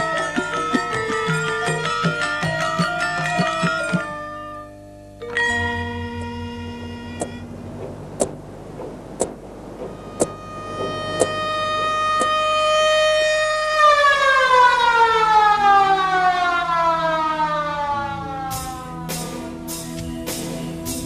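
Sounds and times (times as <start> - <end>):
drum beats: 0.0 - 4.2, 7.2 - 12.4, 18.5 - 21.0
siren winding down: 9.8 - 19.1.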